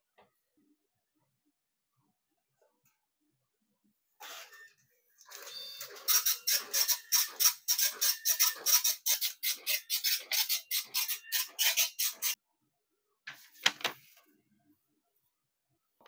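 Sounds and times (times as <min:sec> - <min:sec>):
dot-matrix printer printing: 0:05.3 - 0:12.3.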